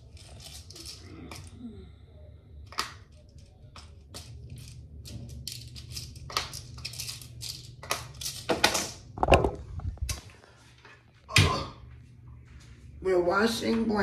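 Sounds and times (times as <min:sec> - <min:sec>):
small objects clicking and tapping: 0:02.6 - 0:09.4.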